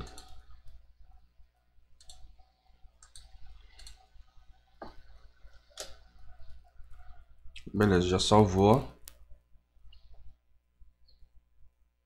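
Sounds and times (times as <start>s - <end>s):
computer mouse and keyboard clicks: 0.0s - 0.8s, 2.0s - 2.4s, 3.0s - 4.1s, 5.6s - 6.1s.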